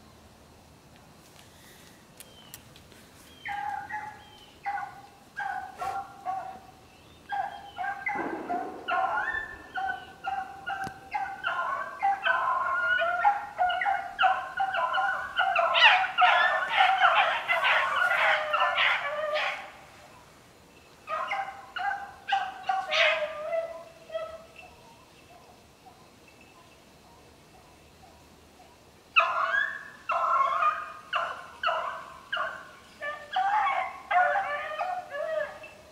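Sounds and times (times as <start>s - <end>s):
hounds baying: 3.4s - 19.9s, 21.0s - 26.1s, 29.2s - 35.9s.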